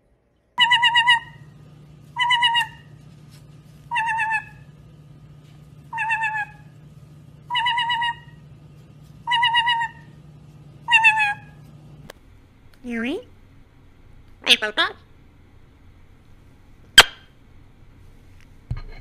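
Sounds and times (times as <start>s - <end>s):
steady low hum: 0.0s - 19.0s
parrot whistling call: 0.6s - 1.6s, 2.2s - 2.9s, 3.9s - 4.6s, 5.9s - 6.7s, 7.5s - 8.4s, 9.2s - 10.1s, 10.8s - 11.6s.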